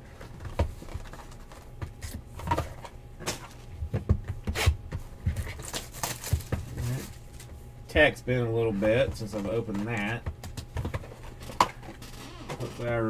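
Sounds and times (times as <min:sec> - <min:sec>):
plastic crinkles and taps: 0:00.3 - 0:07.5
knife cutting plastic wrap: 0:05.3 - 0:07.2.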